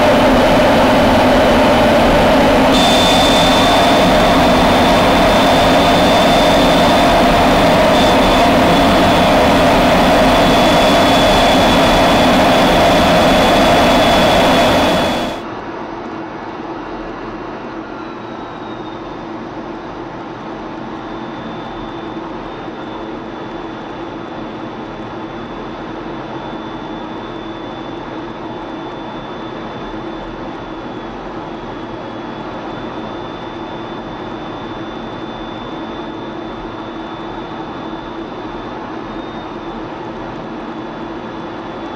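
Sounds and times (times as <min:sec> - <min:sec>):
high whistle: 0:00.0 - 0:15.4
jet engine rushing: 0:00.0 - 0:15.4
muffled jet drone in cockpit: 0:00.0 - 0:15.4.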